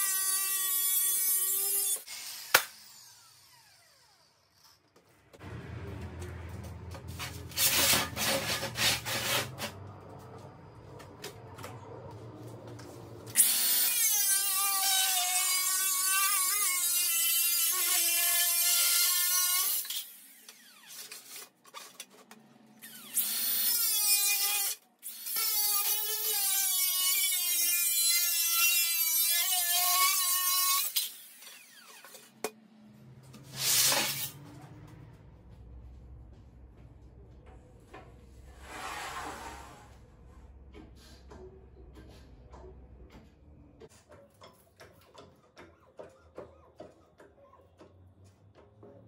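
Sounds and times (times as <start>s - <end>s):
sheet steel screeching on table: 33.5s - 34.4s, 38.5s - 40.0s.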